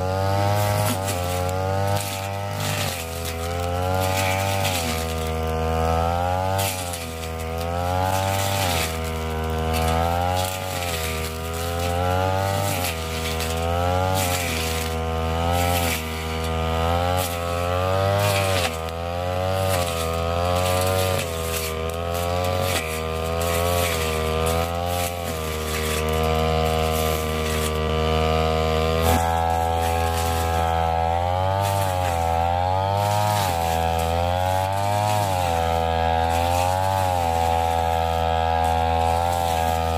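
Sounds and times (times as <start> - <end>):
brush cutter cutting grass: 0.0 - 39.9.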